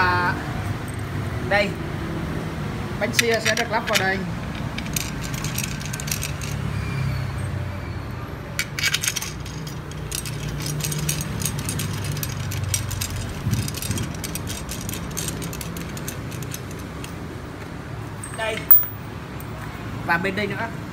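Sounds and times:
metal screws clinking: 3.1 - 6.7, 8.6 - 17.3, 18.2 - 19.1.

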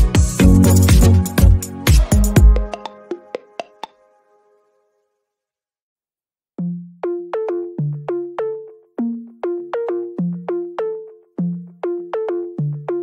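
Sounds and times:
synthesizer keyboard tune: 0.0 - 3.4, 6.6 - 13.0.

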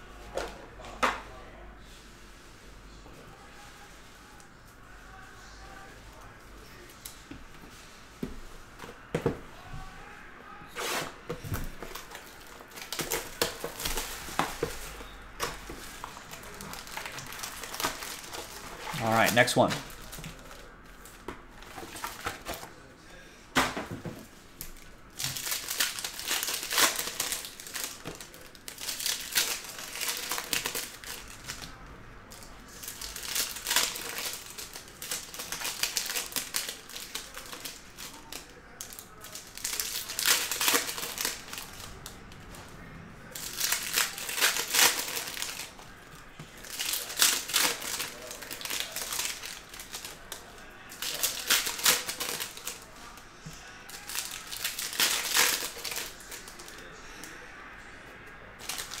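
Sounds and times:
card packs torn open: 10.7 - 22.8, 24.6 - 31.8, 32.4 - 42.2, 43.3 - 45.8, 46.4 - 53.2, 53.9 - 57.4, 58.6 - 59.0
foil wrappers crinkling: 10.7 - 22.9, 24.5 - 31.8, 32.4 - 42.6, 43.3 - 57.4, 58.6 - 59.0.

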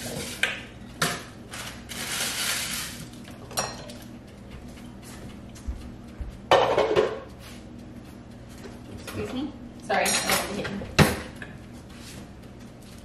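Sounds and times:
dish clink: 6.5 - 7.2.

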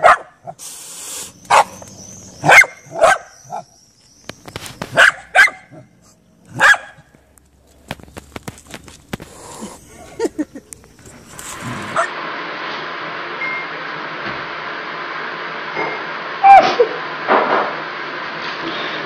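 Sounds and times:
dog barking: 0.0 - 0.6, 1.5 - 1.8, 2.4 - 3.7, 4.9 - 7.1, 11.9 - 12.1.

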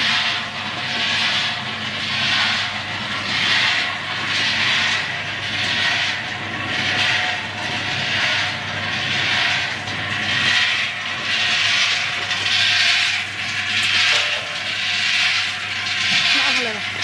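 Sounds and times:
machine humming: 0.0 - 17.0
peanuts tumbling in roaster drum: 0.0 - 17.0.

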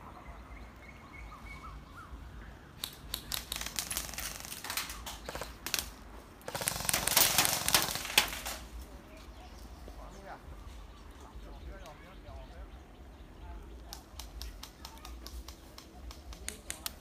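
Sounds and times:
rapid burst of clicks: 2.8 - 8.7, 13.8 - 17.0
bb gun shots: 6.5 - 8.6.

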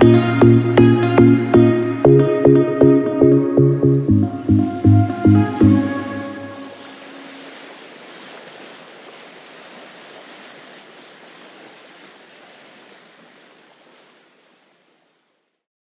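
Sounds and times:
rushing water and waves: 3.8 - 15.6.

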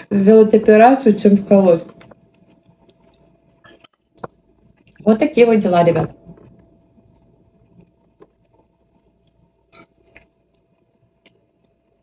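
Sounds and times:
faint steady hum: 0.0 - 12.0
person chewing and smacking: 2.0 - 5.0.

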